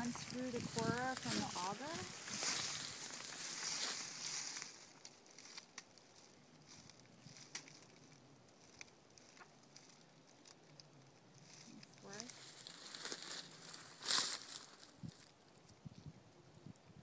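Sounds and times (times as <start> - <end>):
rustling in dry leaves: 0.0 - 15.8.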